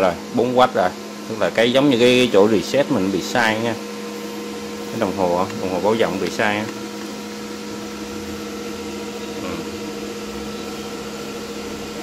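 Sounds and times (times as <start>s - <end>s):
cooling fans whirring: 0.0s - 12.0s
low electrical hum: 0.0s - 12.0s.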